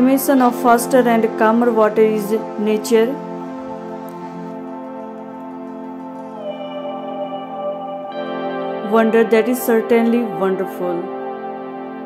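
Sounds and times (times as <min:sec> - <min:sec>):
music of long held chords: 0:00.0 - 0:12.0.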